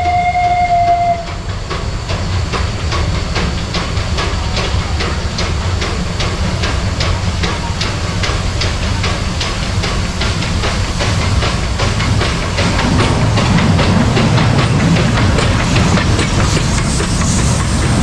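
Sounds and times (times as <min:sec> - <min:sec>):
steam hissing: 0:00.0 - 0:18.0
steam locomotive beats: 0:00.0 - 0:18.0
low rumble: 0:10.2 - 0:18.0.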